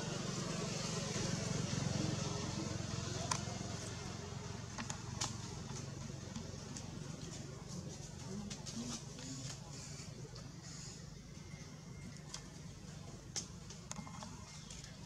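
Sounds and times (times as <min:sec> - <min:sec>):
distant engine hum: 0:00.0 - 0:15.0.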